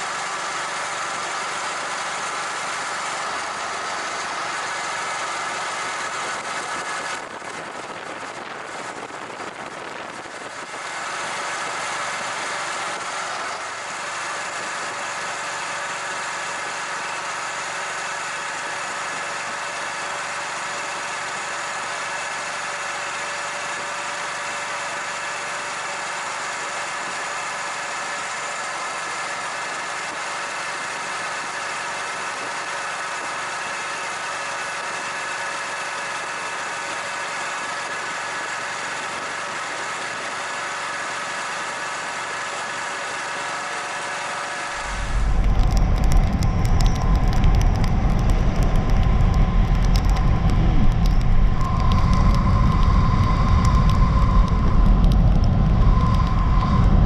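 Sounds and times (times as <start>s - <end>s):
motorcycle engine running: 0.0s - 57.0s
wind and road noise rumble: 0.0s - 57.0s
steady tone: 44.7s - 57.0s.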